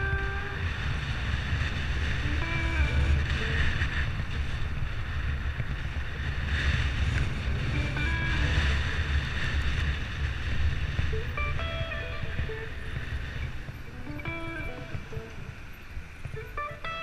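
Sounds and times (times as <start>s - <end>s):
road noise rumble: 0.0s - 17.0s
wind buffeting microphone: 0.0s - 17.0s.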